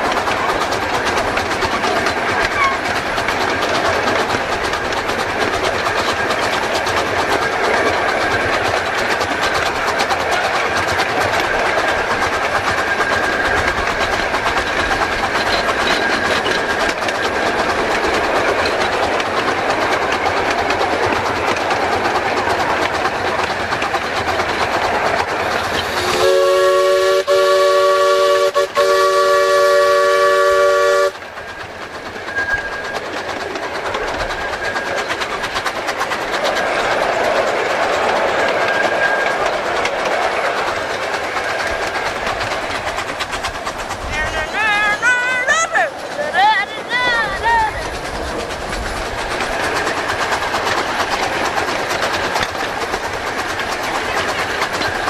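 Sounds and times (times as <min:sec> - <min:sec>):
wheels rolling on rail: 0:00.0 - 0:55.0
steam whistle chord: 0:26.0 - 0:31.2.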